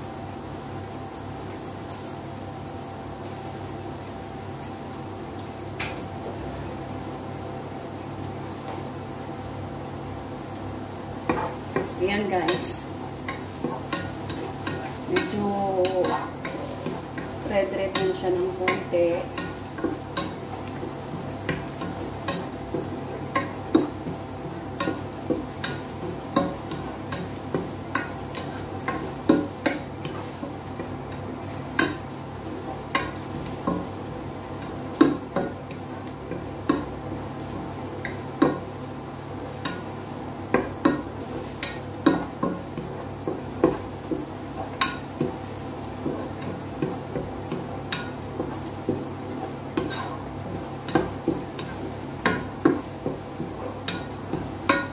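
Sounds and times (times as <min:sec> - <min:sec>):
onions sizzling: 0:00.0 - 0:54.9
steady hum: 0:09.5 - 0:54.9
wooden spoon tapping pot: 0:11.3 - 0:32.1, 0:32.8 - 0:37.2, 0:38.0 - 0:38.8, 0:39.5 - 0:54.9.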